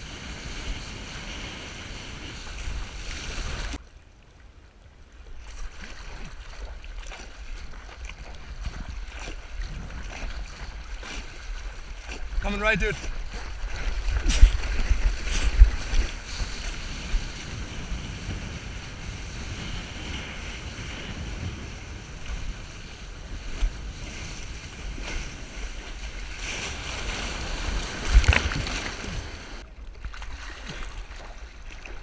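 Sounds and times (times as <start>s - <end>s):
water sloshing against surfboard: 0.3s - 3.8s, 5.3s - 32.0s
heavy low water thumps: 5.7s - 16.3s
wind buffeting microphone: 7.5s - 29.6s.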